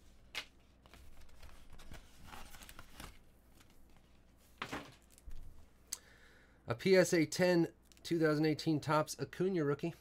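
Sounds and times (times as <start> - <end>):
plastic card sleeve rustling: 0.2 - 5.5.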